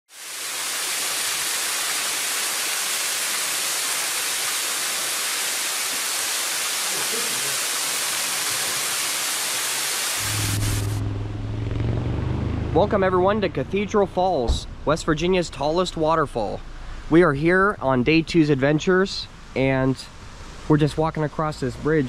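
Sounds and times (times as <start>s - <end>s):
waterfall rushing hiss: 0.1s - 11.0s.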